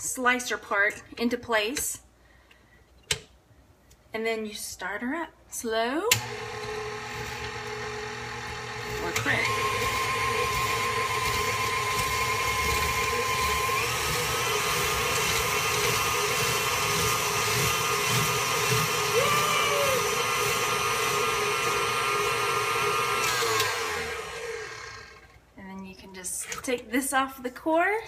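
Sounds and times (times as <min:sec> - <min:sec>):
stand mixer motor whine: 0:06.2 - 0:25.3.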